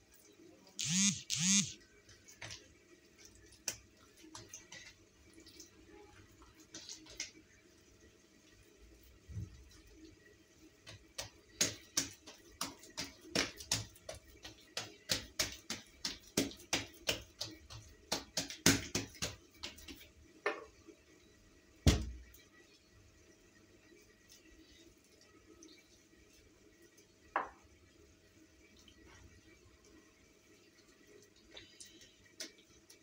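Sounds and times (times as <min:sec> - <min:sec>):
hands slapping dough: 0:03.5 - 0:04.9, 0:10.8 - 0:20.1, 0:21.8 - 0:22.3
dough thump: 0:10.8 - 0:20.7, 0:21.8 - 0:22.3.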